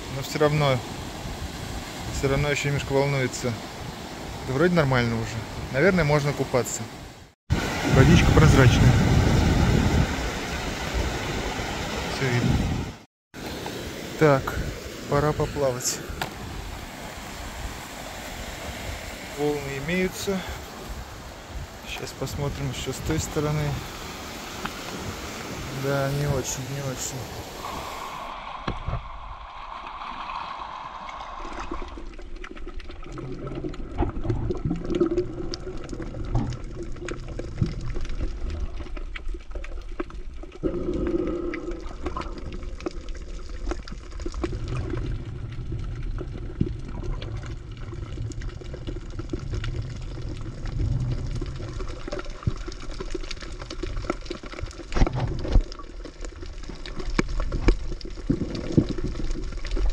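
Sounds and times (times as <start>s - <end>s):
muffled water sloshing underwater: 26.4s - 59.9s.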